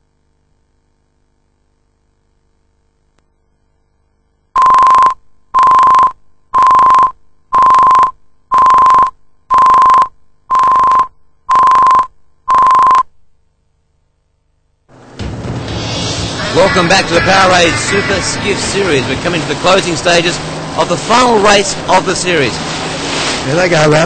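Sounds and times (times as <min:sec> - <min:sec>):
high-pitched tone beeps: 0:04.6 - 0:13.0.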